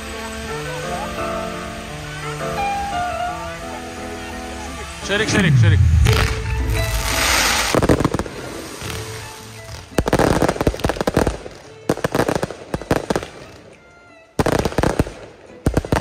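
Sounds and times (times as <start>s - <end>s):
fireworks crackling: 4.9s - 16.0s.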